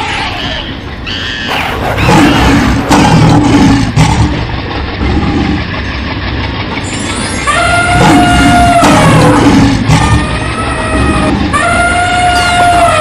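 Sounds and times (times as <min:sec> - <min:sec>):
big cat roaring: 0:01.4 - 0:05.8, 0:07.5 - 0:13.0.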